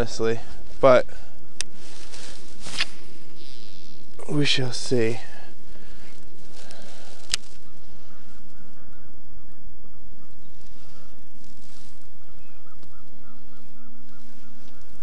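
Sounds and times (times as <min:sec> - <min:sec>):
background hiss: 0:00.0 - 0:15.0
distant waterfowl calling: 0:05.3 - 0:15.0.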